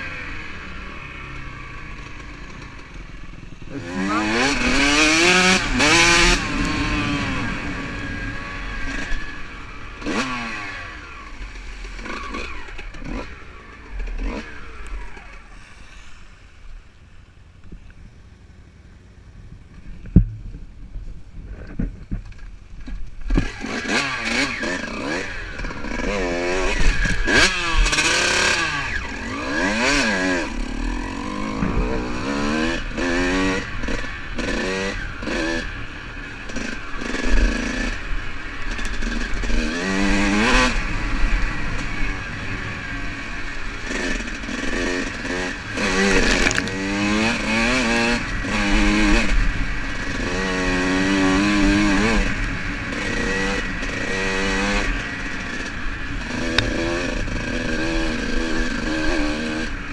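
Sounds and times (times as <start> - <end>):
dirt bike engine revving: 0.0 - 16.1, 23.3 - 59.9
sharp knock: 31.4 - 34.0.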